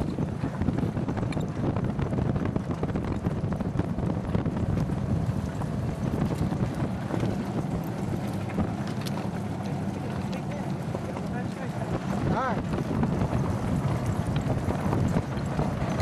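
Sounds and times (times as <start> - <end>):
cart rolling on dirt trail: 0.0 - 16.0
wind on microphone: 0.0 - 16.0.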